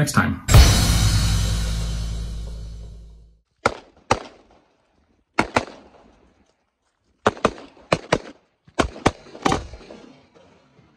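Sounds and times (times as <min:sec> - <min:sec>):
gunshots: 0:03.6 - 0:04.6, 0:05.4 - 0:06.0, 0:07.2 - 0:09.9.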